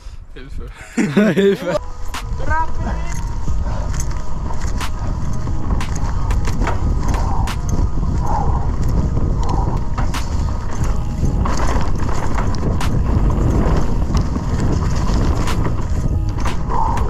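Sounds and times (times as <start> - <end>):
wind buffeting microphone: 0.0 - 17.0
bike clicks and rattles: 2.0 - 17.0
bike tyres rumbling on dirt: 2.3 - 17.0.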